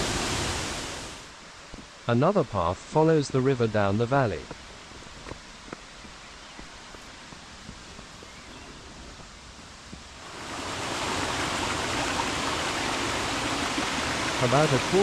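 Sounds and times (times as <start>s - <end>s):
river water over rocks: 0.0s - 2.0s, 9.7s - 15.0s.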